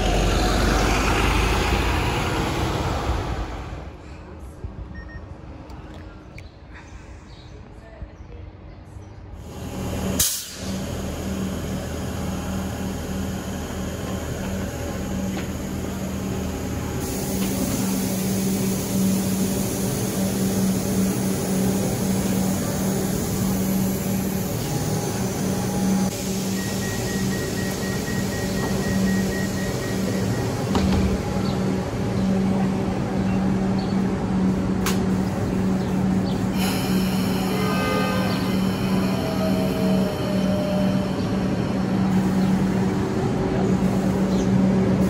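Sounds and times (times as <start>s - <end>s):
heavy vehicle engine humming: 0.0s - 4.5s, 9.4s - 45.0s
sharp hiss: 10.2s - 10.8s.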